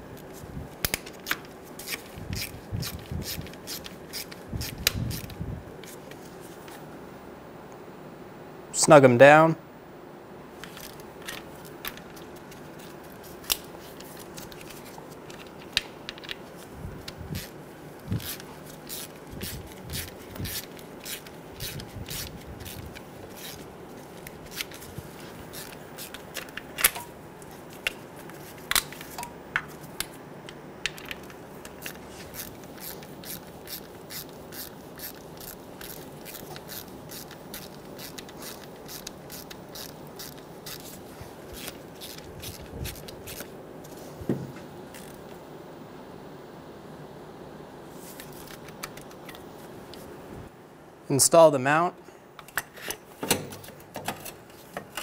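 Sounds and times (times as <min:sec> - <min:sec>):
hand ratchet clicking: 0:31.8 - 0:40.8.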